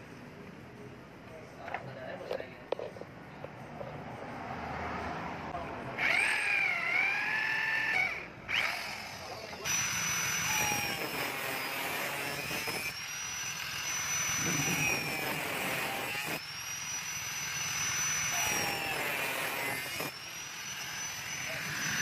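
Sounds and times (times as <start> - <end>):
angle grinder cutting metal tube: 6.0 - 22.0.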